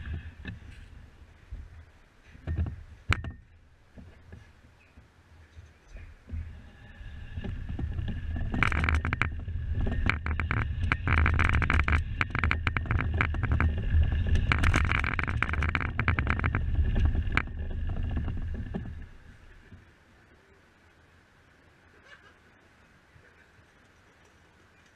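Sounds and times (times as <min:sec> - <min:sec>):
tyres rumbling over concrete: 0:06.3 - 0:19.8
chassis rattling and clicking: 0:07.3 - 0:19.8.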